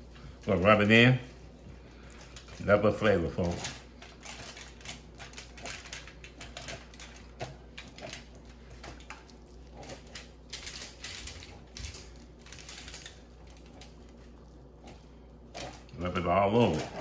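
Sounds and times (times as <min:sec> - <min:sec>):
soft wet rubbing: 0:00.0 - 0:04.5
foil crinkling: 0:00.0 - 0:17.0.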